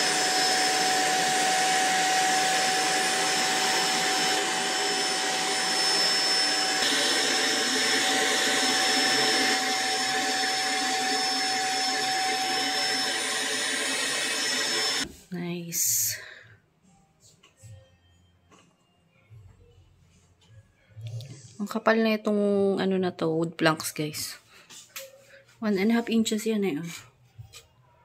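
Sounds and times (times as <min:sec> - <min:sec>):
handheld vacuum cleaner running: 0:00.0 - 0:15.1.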